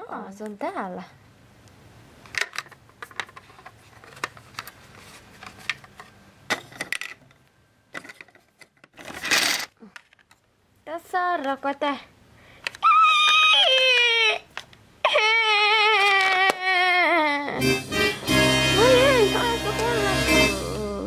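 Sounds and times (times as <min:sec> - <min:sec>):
plastic toys clicking and tapping: 0:02.3 - 0:04.8, 0:15.8 - 0:16.7.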